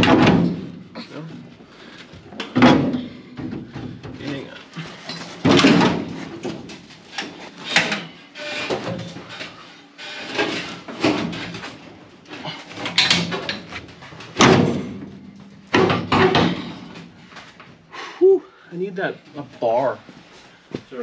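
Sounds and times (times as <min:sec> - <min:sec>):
sheet metal scraping and clanking: 0:04.8 - 0:15.1.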